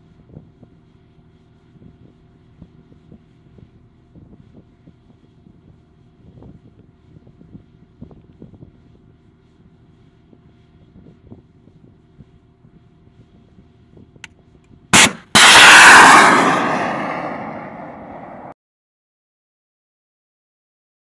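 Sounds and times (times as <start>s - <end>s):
missile launch bang: 15.0s - 18.5s
rocket motor rushing: 15.0s - 18.5s.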